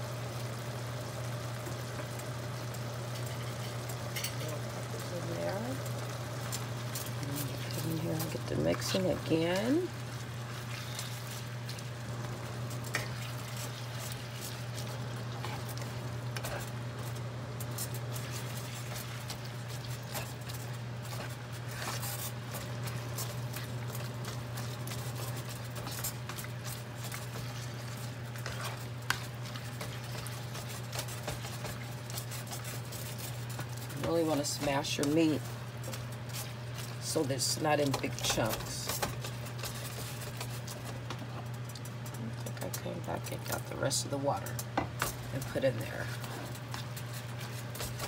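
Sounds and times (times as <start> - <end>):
steady low hum: 0.0 - 48.0
spatula scraping a skillet: 10.4 - 11.8, 12.8 - 16.7, 17.6 - 37.0.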